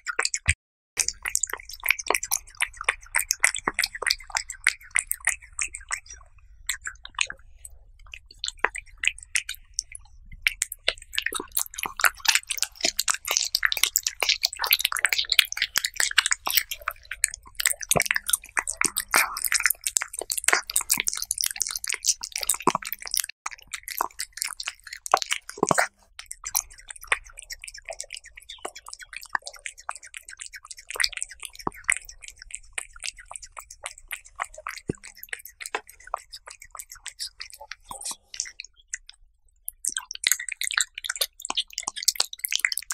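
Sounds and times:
cat chewing mouth clicks: 0.1s - 42.9s.

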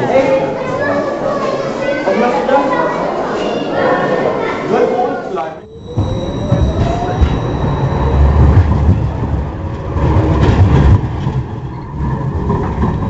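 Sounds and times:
model tram rumbling on rails: 6.0s - 13.0s.

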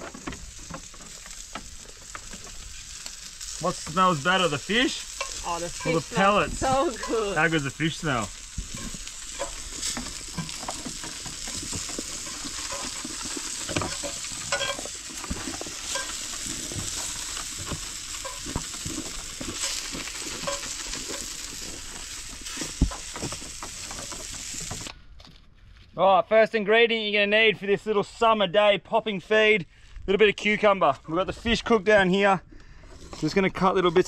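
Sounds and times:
fish sizzling in hot oil: 0.0s - 24.9s.

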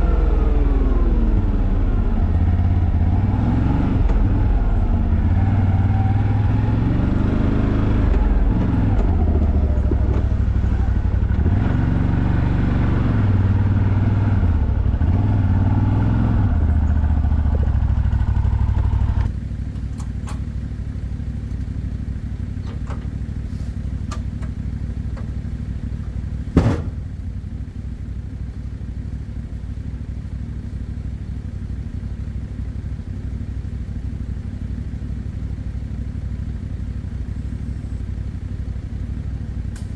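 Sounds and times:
engine revving: 0.0s - 19.3s
engine idling: 13.2s - 39.9s
loud sharp knock: 26.6s - 27.0s.

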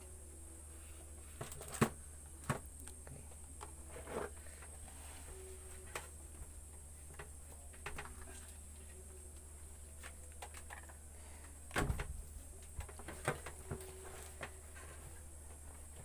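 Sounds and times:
faint high whine: 0.0s - 16.0s
thump: 11.7s - 12.1s.

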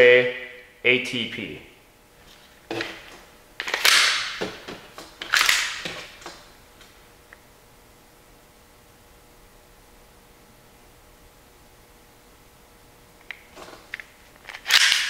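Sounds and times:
pistol handling clicks and knocks: 2.7s - 6.4s, 13.2s - 15.0s.

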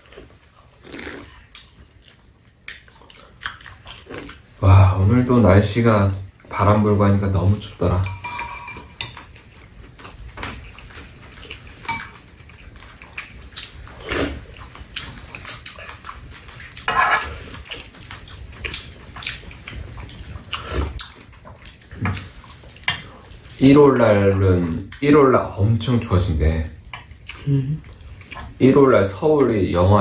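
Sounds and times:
chewing and mouth noises: 0.0s - 4.6s, 9.2s - 23.6s, 27.0s - 28.6s
metal spoons clinking on bowls: 7.9s - 9.3s, 11.8s - 12.2s.

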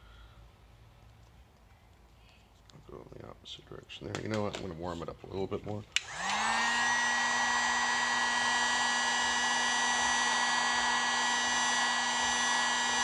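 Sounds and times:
heat gun running: 6.0s - 13.0s.

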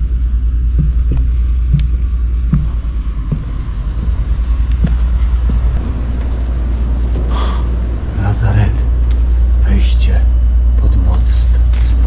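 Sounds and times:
footsteps walking: 0.0s - 8.0s
low wind rumble on microphone: 0.0s - 12.0s.

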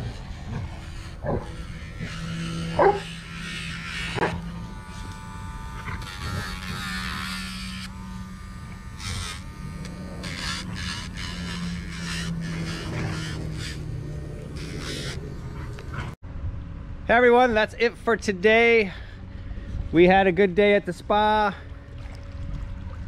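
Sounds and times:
rotary nail grinder running: 0.0s - 16.1s
dog barking: 2.8s - 3.1s.

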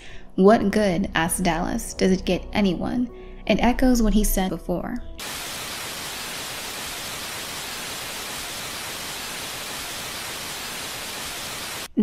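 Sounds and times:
static noise hiss: 5.2s - 12.0s.

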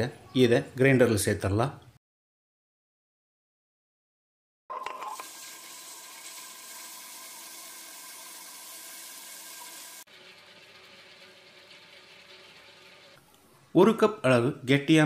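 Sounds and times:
wet grinder whirring: 4.7s - 13.2s
rice being poured: 4.8s - 13.2s.

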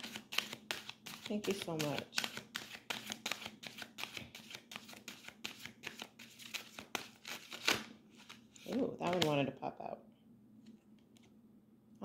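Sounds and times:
cards being shuffled: 0.0s - 9.5s.

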